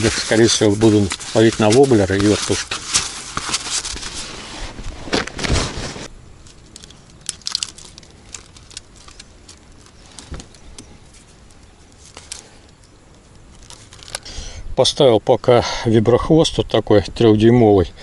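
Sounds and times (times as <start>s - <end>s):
bag rustling: 0.0s - 12.7s.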